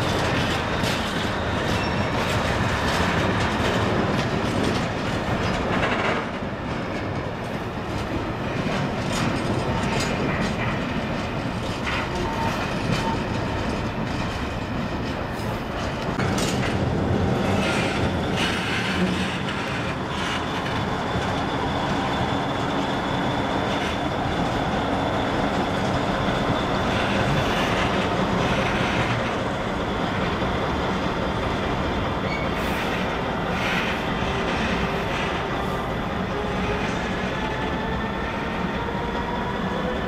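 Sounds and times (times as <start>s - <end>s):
rail clatter: 0.0s - 39.3s
diesel locomotive running: 0.0s - 40.0s
wheel squeals: 0.8s - 2.3s.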